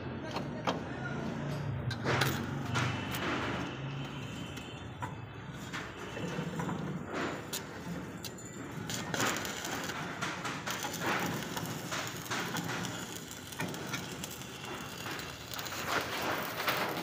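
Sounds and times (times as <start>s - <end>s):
steady machine noise: 5.8s - 17.0s
machine drum clattering: 6.6s - 17.0s.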